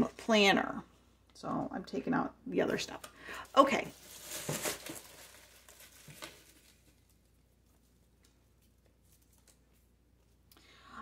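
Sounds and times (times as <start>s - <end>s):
paper shred rustling: 3.6s - 7.0s.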